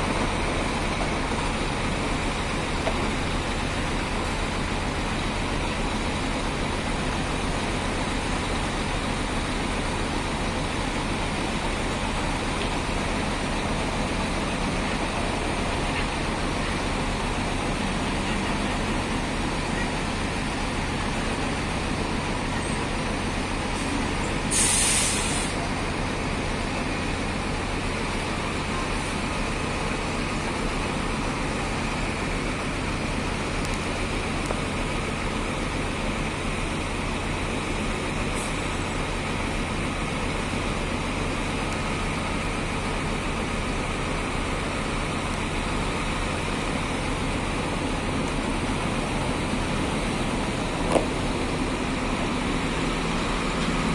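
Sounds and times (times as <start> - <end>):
bus diesel engine running: 0.0 - 53.9
air brake hiss: 23.7 - 25.6.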